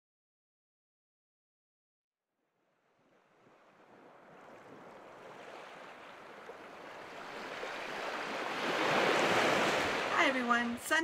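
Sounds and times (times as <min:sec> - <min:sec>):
ocean surf: 0:02.9 - 0:11.0.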